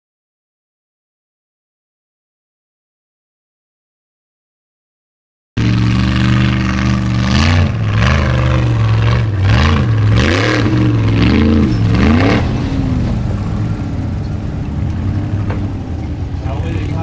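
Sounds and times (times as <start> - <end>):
buggy engine revving: 5.6 - 17.0.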